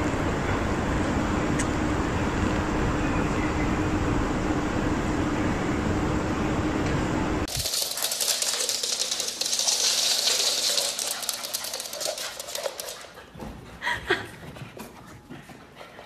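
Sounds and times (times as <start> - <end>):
dog claws clicking on wooden floor: 7.5 - 13.3.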